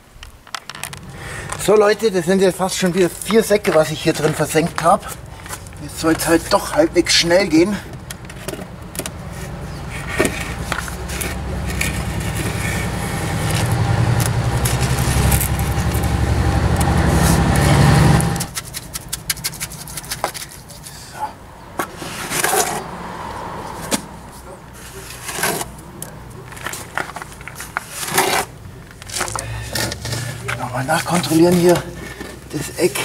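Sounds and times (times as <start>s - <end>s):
engine rumbling: 0.0s - 33.0s
board scraping wet screed: 0.8s - 7.8s, 9.2s - 16.0s, 21.8s - 33.0s.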